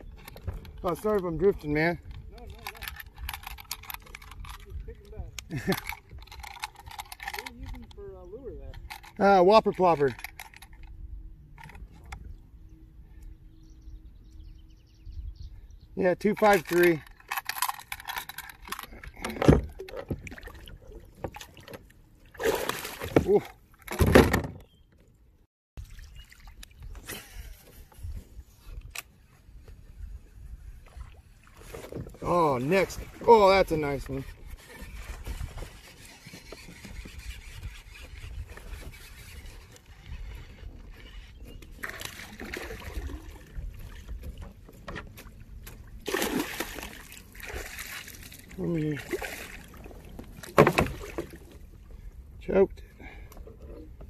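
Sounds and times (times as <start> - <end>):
clicks and rattles in a kayak: 0.0 - 13.3, 16.0 - 54.0
fish splashing: 45.9 - 51.5.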